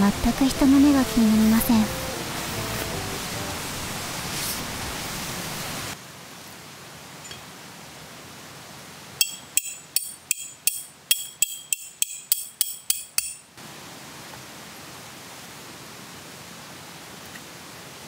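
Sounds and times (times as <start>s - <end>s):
hammer striking metal tent stake: 9.2s - 13.5s.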